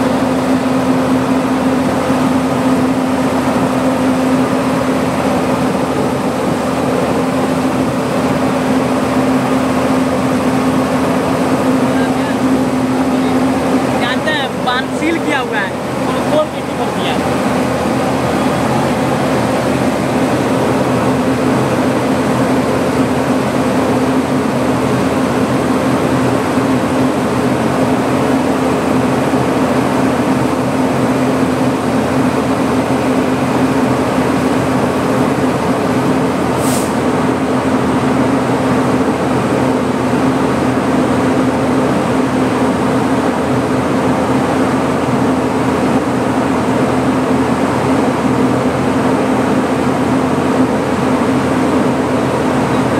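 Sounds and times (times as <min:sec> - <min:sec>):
locomotive engine hum: 0:00.0 - 0:52.9.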